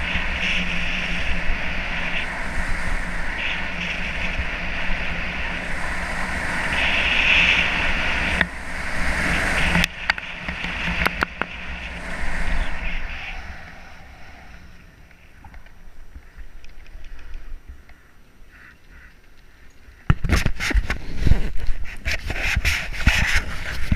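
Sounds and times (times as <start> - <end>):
wind rushing over camera: 0.0 - 23.9
ski edges scraping snow: 20.2 - 23.9.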